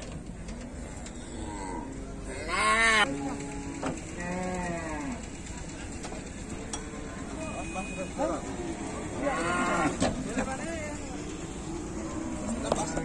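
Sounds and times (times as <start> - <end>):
cattle mooing: 0.9 - 5.3, 8.5 - 10.1.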